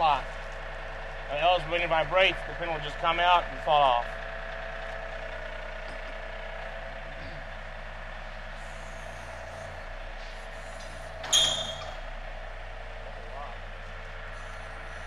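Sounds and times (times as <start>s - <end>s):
tractor diesel engine drone: 0.0s - 15.0s
short hiss with high squeal: 10.5s - 12.0s.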